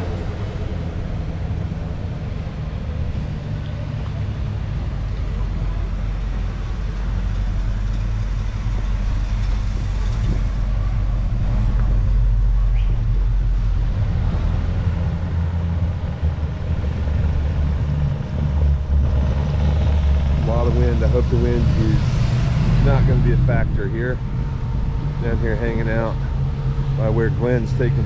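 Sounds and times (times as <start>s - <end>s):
car engine idling: 0.0s - 28.0s.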